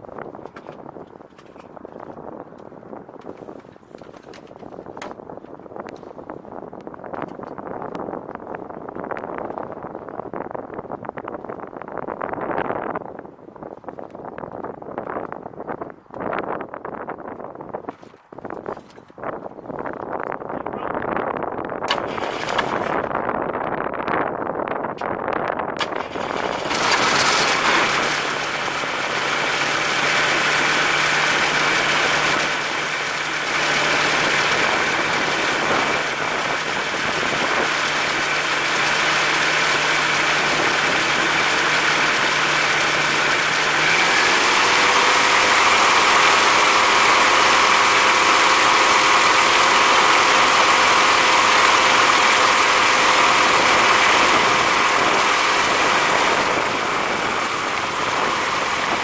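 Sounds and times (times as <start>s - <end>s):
aircraft engine and propeller: 21.9s - 23.2s, 25.8s - 59.0s.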